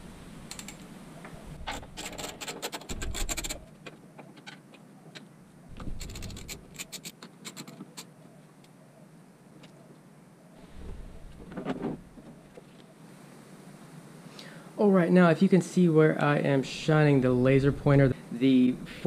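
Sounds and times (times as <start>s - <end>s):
rapid clicking and scratching: 1.6s - 4.6s, 5.8s - 8.1s.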